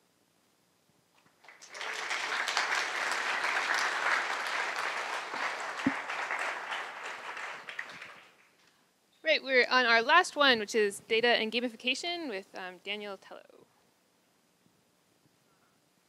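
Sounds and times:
audience applauding: 0:01.2 - 0:08.6.

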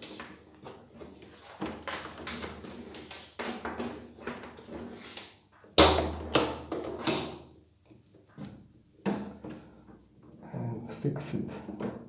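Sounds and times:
cable rustling and scraping: 0:00.0 - 0:05.7.

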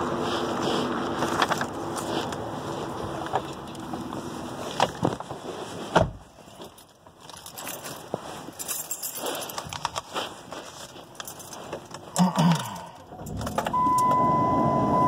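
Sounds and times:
car door shutting: 0:05.9 - 0:06.3.

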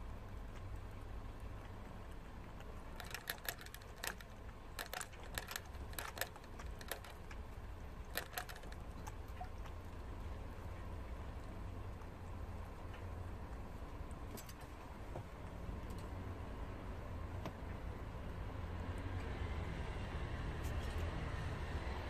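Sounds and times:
animal drinking from sipper tube: 0:00.0 - 0:15.7.

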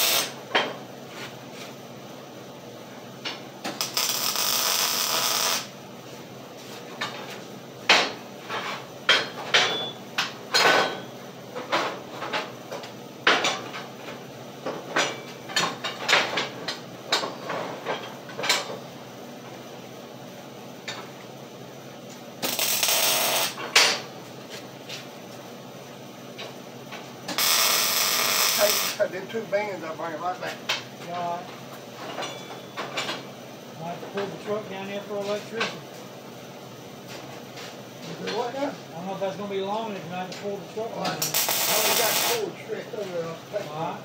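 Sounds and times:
arc welding crackling hiss: 0:00.0 - 0:00.7, 0:03.3 - 0:07.5, 0:22.4 - 0:24.0, 0:27.2 - 0:31.5, 0:37.1 - 0:44.0.

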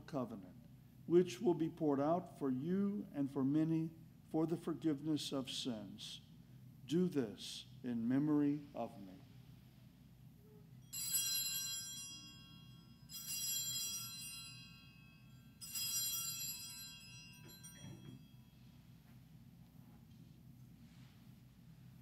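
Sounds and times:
altar bells ringing: 0:10.8 - 0:19.0.

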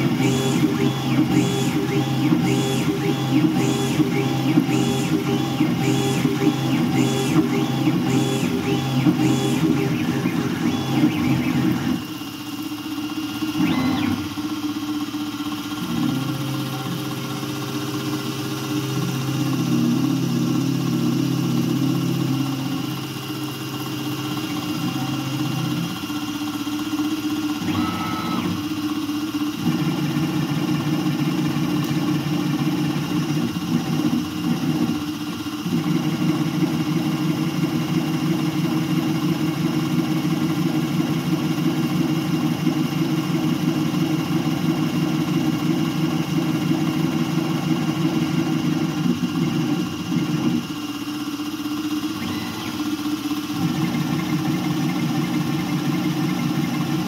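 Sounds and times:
drive motors humming: 0:00.0 - 0:12.2
spindle whine: 0:00.0 - 0:12.8.

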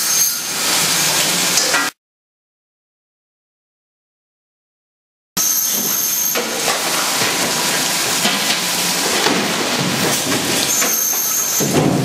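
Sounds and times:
loud hiss of spraying water: 0:05.4 - 0:12.0
knocks and clatter: 0:08.2 - 0:12.0.

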